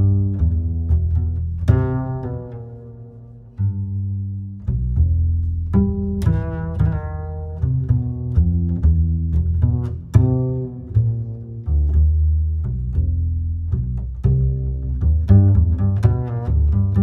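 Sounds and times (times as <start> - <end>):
bass line: 0.0 - 17.0
plucked low string notes: 0.0 - 17.0.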